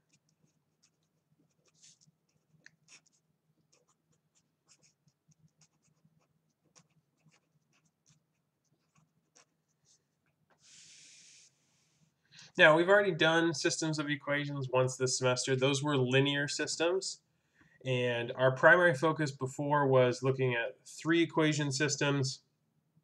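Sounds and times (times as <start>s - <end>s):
pen scratching on paper: 0.0s - 10.0s.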